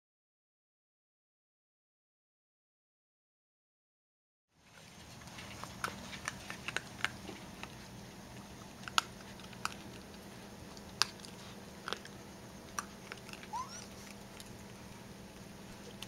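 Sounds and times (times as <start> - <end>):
low steady hum: 4.6 - 16.0
raccoons crunching food: 4.6 - 16.0.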